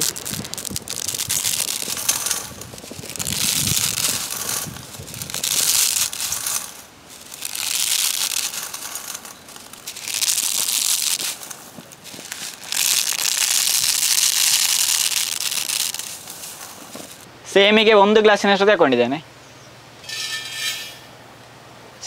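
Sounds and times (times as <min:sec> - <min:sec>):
dry noodles snapping: 0:00.0 - 0:17.2.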